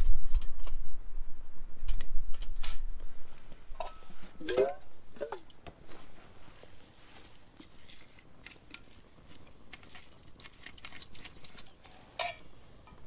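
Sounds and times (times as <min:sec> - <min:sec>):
wind rumble on microphone: 0:00.0 - 0:03.8
metal cup clinking and scraping: 0:03.8 - 0:05.5, 0:07.1 - 0:12.5.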